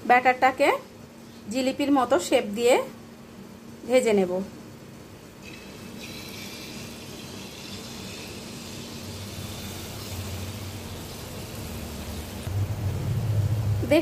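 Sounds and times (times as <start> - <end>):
low steady hum: 0.0 - 14.0
batter sizzling in hot oil: 5.4 - 12.5.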